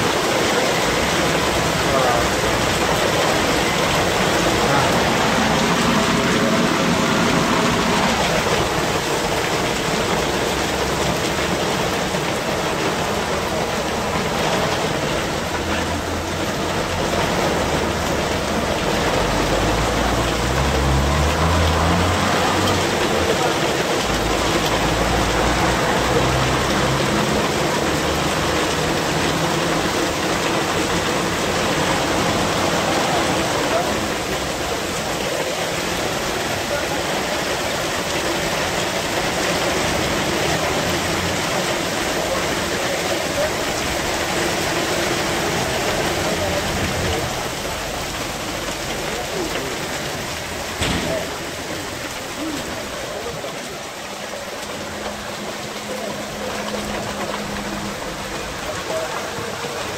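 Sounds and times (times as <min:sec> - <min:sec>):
car engine: 0:00.0 - 0:59.9
heavy rain and hail: 0:00.0 - 0:59.9.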